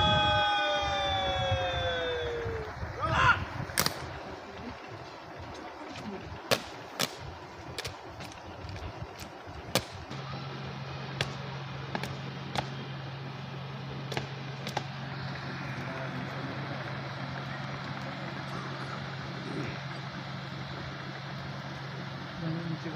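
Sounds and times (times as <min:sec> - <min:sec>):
person shouting: 0:00.0 - 0:03.6
steady low hum: 0:00.0 - 0:22.9
sharp cracks: 0:03.7 - 0:04.3, 0:05.5 - 0:13.1, 0:13.9 - 0:15.5.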